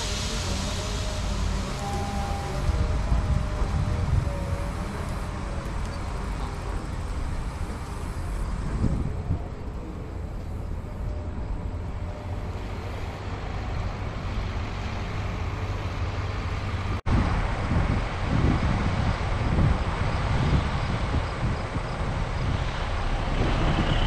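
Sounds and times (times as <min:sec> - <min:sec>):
farm machinery rumbling: 0:18.0 - 0:24.0.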